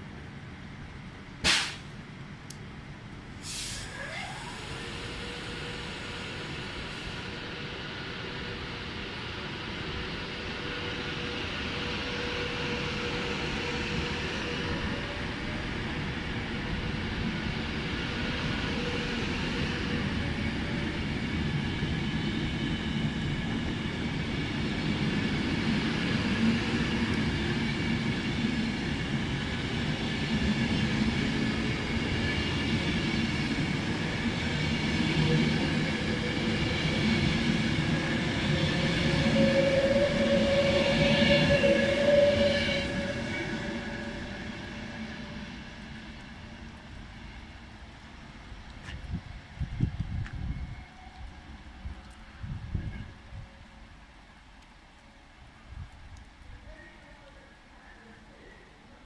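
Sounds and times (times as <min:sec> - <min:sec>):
electric train passing: 0:02.1 - 0:54.4.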